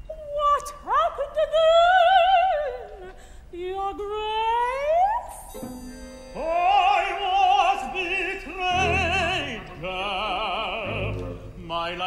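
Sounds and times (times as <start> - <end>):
opera singer singing with vibrato: 0.0 - 12.0
instrumental accompaniment: 5.5 - 11.6.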